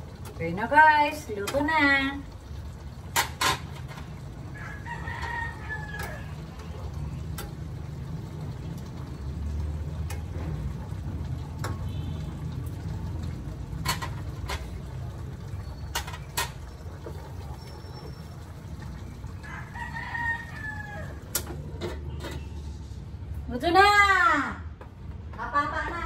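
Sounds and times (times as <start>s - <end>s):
rooster crowing: 4.5s - 6.4s, 19.4s - 21.3s.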